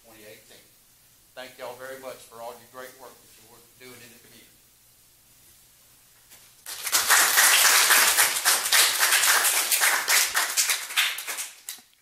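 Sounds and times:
people applauding: 0:06.7 - 0:12.0.

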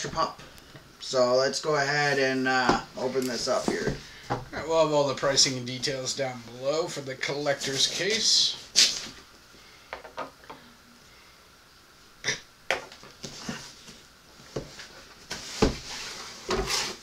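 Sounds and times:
cardboard and tape scraping: 0:14.8 - 0:17.0.

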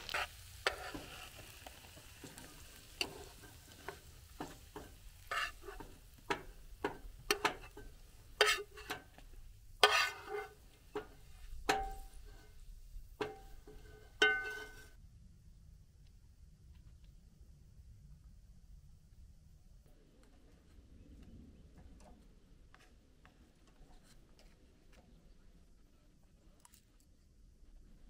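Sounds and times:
metal spatula scraping frying pan: 0:00.0 - 0:15.0.

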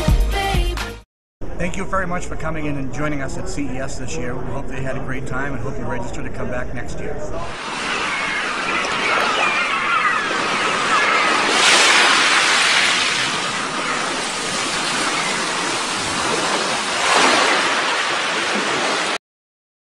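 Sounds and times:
waves breaking: 0:07.5 - 0:19.2
rush of ocean surf: 0:07.6 - 0:19.2.

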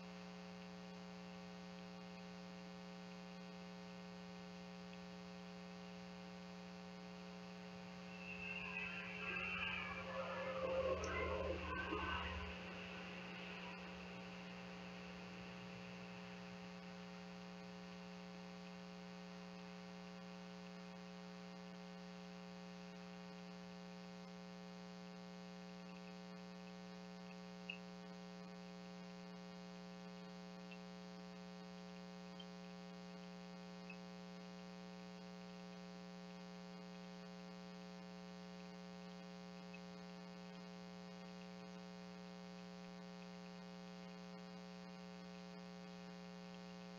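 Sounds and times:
faint electrical hum: 0:00.0 - 0:46.9
small tick: 0:02.0 - 0:02.4, 0:04.8 - 0:05.1, 0:25.9 - 0:28.5, 0:29.3 - 0:37.1, 0:38.5 - 0:46.9.

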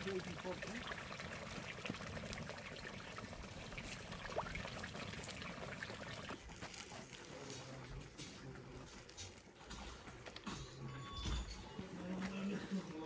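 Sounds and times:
water trickling: 0:00.0 - 0:06.4.

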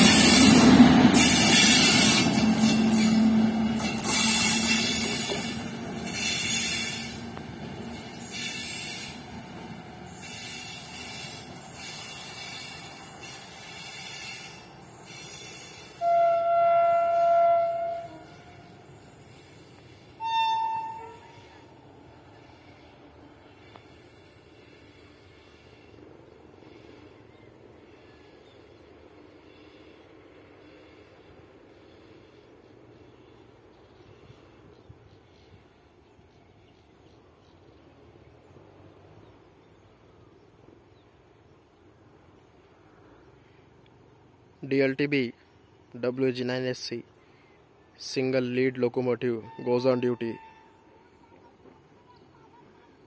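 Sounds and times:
locomotive horn blasts: 0:15.9 - 0:18.9, 0:20.2 - 0:21.7, 0:49.4 - 0:51.0.

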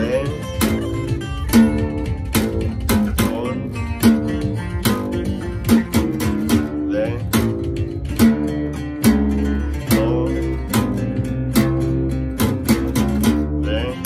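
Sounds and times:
acoustic bass guitar plucked: 0:00.0 - 0:14.0.

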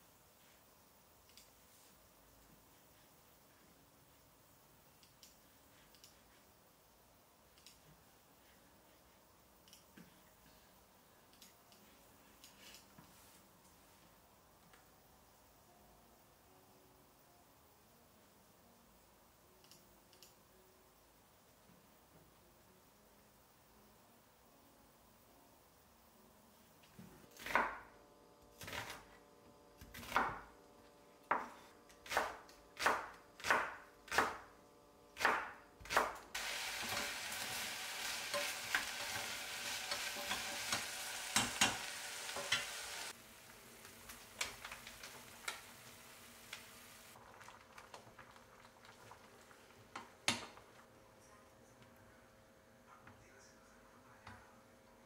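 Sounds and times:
click: 0:01.3 - 0:01.5, 0:05.0 - 0:06.2, 0:07.6 - 0:07.8, 0:09.6 - 0:09.9, 0:19.6 - 0:20.4
knife chopping on cutting board: 0:35.2 - 0:36.2
stew simmering with bubbling hiss: 0:35.2 - 0:51.0
onions sizzling in a pan: 0:36.3 - 0:47.5.

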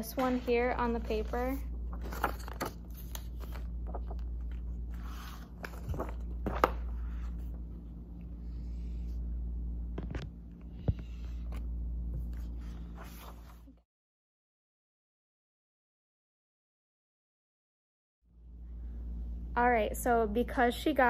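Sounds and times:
low room hum: 0:00.0 - 0:13.8, 0:18.3 - 0:21.0.

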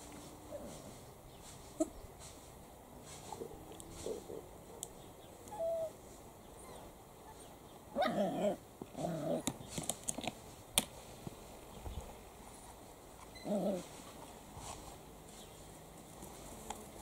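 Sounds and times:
puppies whining: 0:05.4 - 0:09.6, 0:13.3 - 0:13.9
puppies growling: 0:06.6 - 0:09.6, 0:13.4 - 0:14.0.

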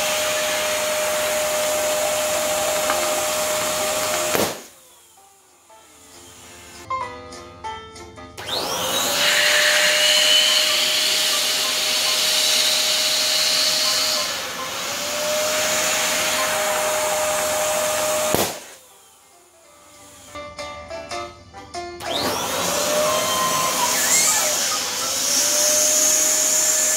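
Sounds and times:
electric balloon pump whirring: 0:00.0 - 0:06.9, 0:08.4 - 0:19.3, 0:20.0 - 0:20.4, 0:22.0 - 0:26.9
balloon bursting: 0:01.8 - 0:04.8, 0:17.2 - 0:18.8.

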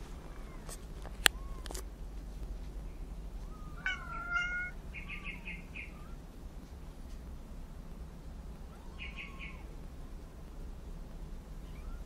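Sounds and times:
kitten mewing: 0:03.6 - 0:06.2.

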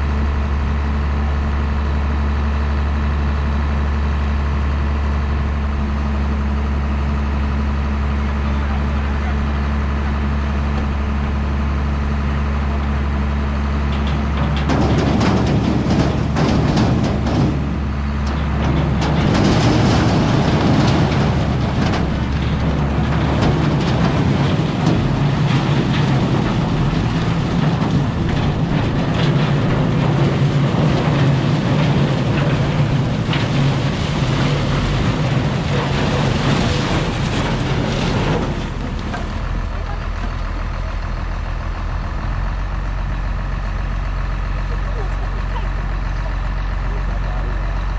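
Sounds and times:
diesel engine idling: 0:00.0 - 0:47.9
metal clanking and rattling: 0:13.5 - 0:47.7.

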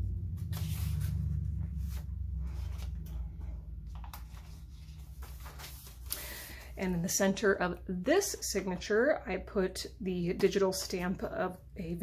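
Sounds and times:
steady low hum: 0:00.0 - 0:10.1
paper pages rustling: 0:00.4 - 0:06.7.

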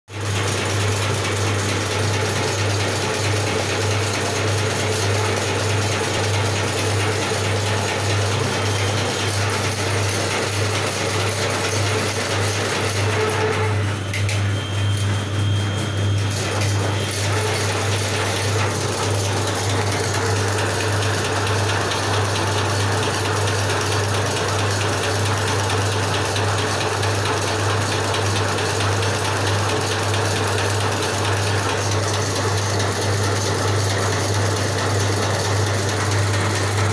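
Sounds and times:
machine motor hum: 0:00.2 - 0:36.9.

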